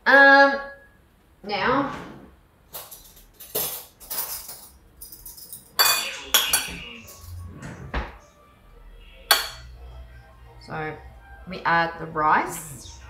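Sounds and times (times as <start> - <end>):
dishes and cutlery clinking: 2.8 - 8.1, 9.3 - 9.7.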